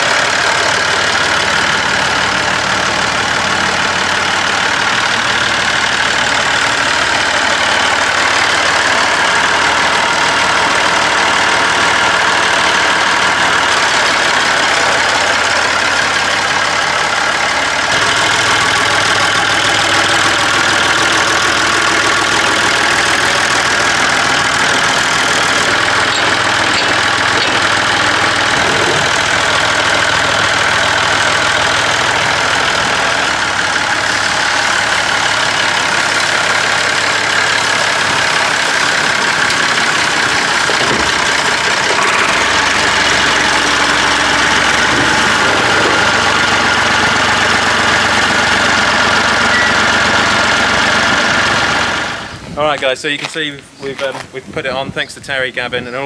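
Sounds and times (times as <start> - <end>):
tractor engine idling: 0.0 - 56.0.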